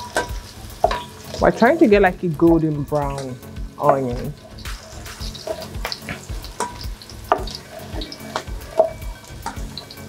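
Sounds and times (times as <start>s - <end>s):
onion sizzling in oil: 0.0s - 10.0s
spatula knocking against pot: 0.1s - 1.1s, 5.5s - 9.7s.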